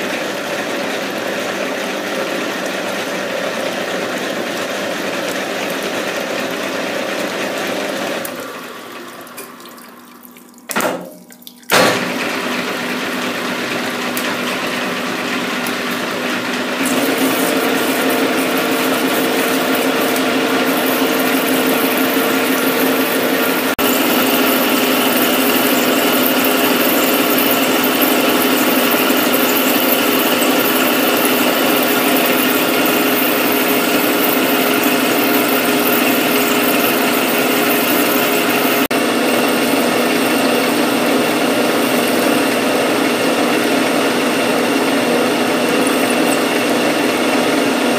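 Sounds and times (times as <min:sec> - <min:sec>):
metal lathe cutting: 0:00.0 - 0:09.2, 0:12.0 - 0:47.9
coolant splashing: 0:08.2 - 0:14.2.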